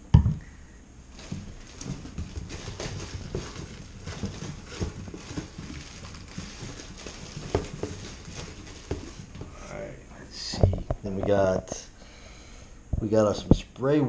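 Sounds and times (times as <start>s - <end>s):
rummaging in a cardboard box: 1.1s - 9.6s.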